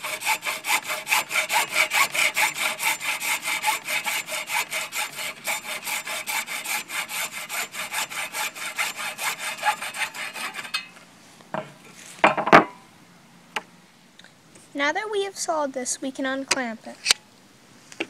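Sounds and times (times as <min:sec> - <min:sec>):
hacksaw cutting plastic pipe: 0:00.0 - 0:10.9.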